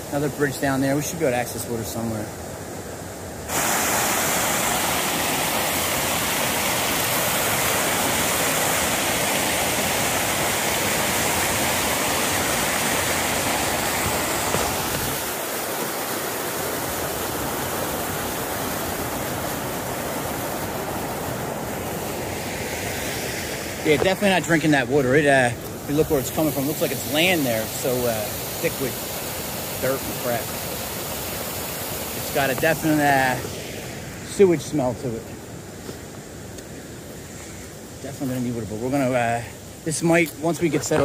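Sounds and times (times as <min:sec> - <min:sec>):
water pouring over falls: 0:03.5 - 0:22.8, 0:23.7 - 0:33.5.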